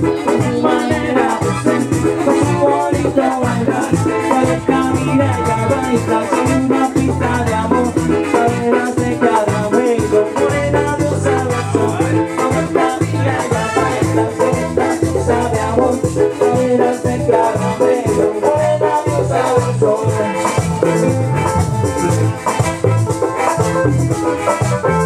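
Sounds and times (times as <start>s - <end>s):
stepping bass line: 0.0s - 13.3s, 19.1s - 25.0s
latin pop music: 0.0s - 25.0s
shaker percussion: 0.0s - 25.0s.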